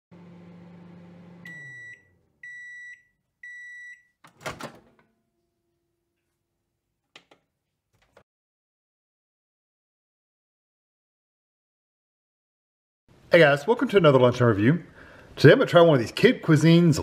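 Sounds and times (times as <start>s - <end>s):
microwave oven hum: 0.1s - 3.8s
microwave door opening clunk: 4.3s - 5.1s.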